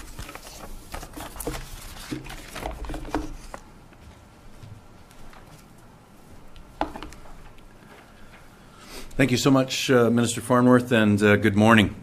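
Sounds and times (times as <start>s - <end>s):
handling noise at microphones: 0.0s - 9.2s.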